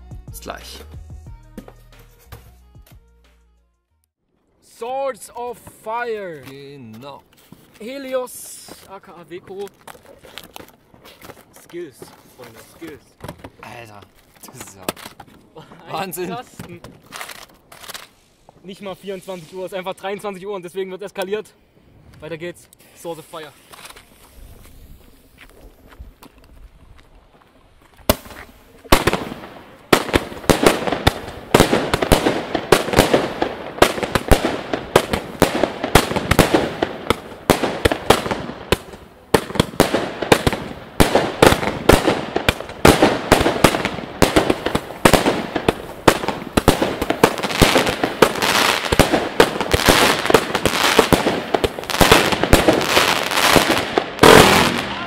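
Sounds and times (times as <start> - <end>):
fireworks launching and bursting: 11.0 - 20.4, 21.8 - 26.5, 27.9 - 55.0.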